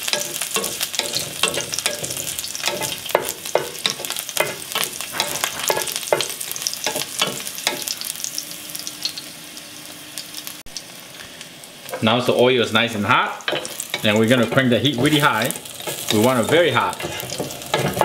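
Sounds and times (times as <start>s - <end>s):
garlic sizzling in hot oil: 0.0s - 18.0s
wooden spatula scraping a pan: 0.1s - 7.4s, 13.6s - 18.0s.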